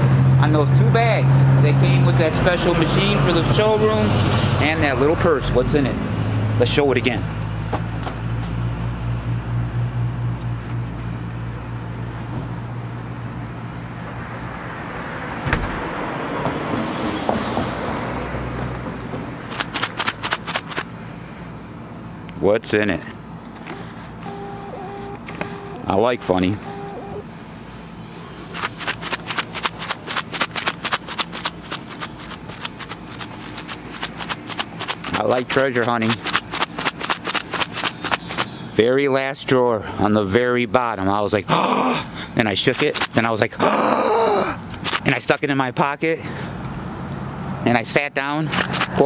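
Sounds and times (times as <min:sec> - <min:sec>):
outdoor background noise: 0:00.0 - 0:49.0
sharp click: 0:19.5 - 0:20.9, 0:28.5 - 0:38.5, 0:48.5 - 0:49.0
low motor hum: 0:23.2 - 0:35.2
objects rattling in coin purse: 0:28.5 - 0:38.4.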